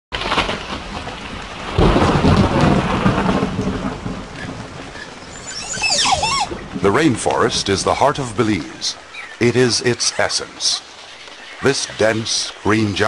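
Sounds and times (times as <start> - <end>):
steady rain: 0.1 - 13.0
thunder rumbling: 0.2 - 9.0.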